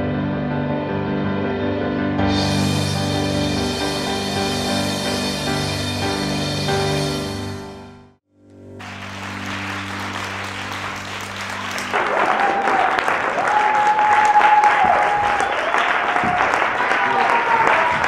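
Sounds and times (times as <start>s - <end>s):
low held chord: 0.0s - 12.7s
audience applauding: 8.8s - 18.0s
audience cheering: 8.8s - 18.0s.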